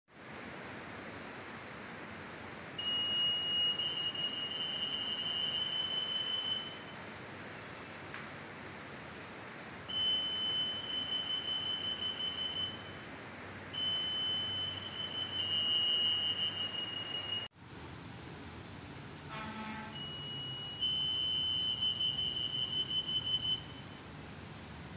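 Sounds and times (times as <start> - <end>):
anti-theft gate alarm tone: 2.8 - 7.0, 9.9 - 13.0, 13.7 - 17.5, 19.3 - 24.0.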